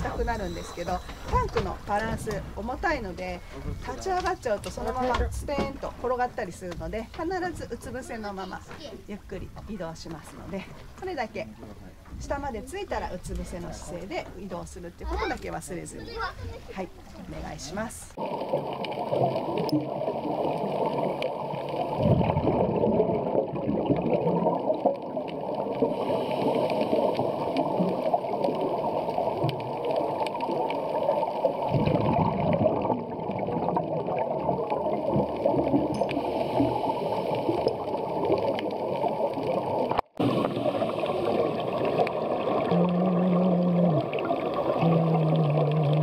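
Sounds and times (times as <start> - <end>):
muffled underwater bubbles gurgling: 0.0 - 15.0, 16.6 - 46.0.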